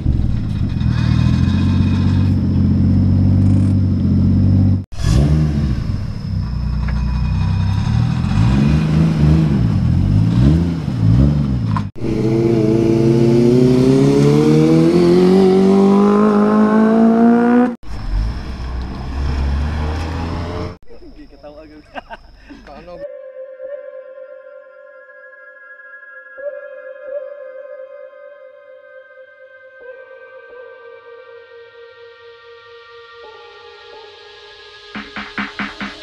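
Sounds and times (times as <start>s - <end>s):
car engine revving: 0.0s - 20.8s.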